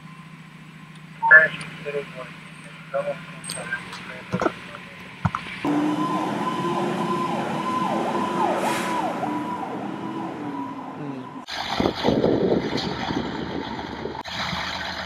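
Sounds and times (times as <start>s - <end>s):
fire engine siren yelping: 1.2s - 4.2s, 5.6s - 12.2s.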